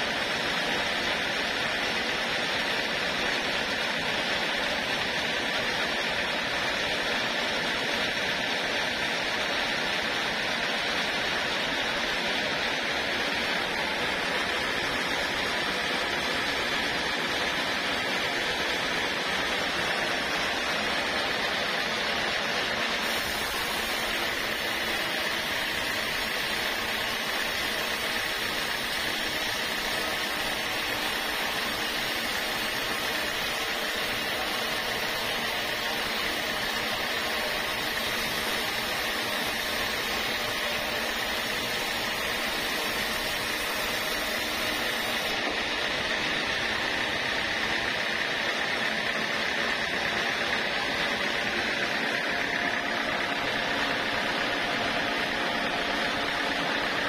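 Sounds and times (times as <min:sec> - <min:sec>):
band saw cutting wood: 0:00.0 - 0:57.0
bright hiss: 0:23.0 - 0:45.4.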